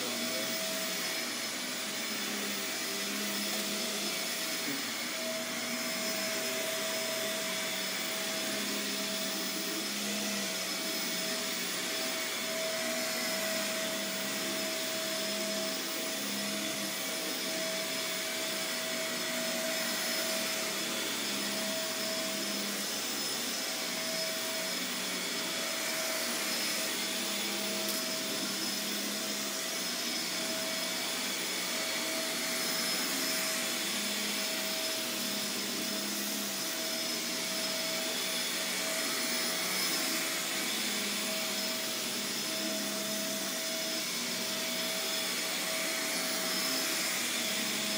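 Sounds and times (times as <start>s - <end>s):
vacuum cleaner running: 0.0s - 47.9s.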